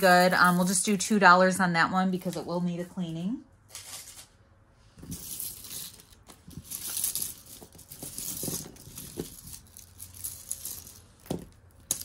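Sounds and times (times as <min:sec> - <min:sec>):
jewelry chains and beads clinking: 0:00.0 - 0:01.0, 0:05.0 - 0:12.0.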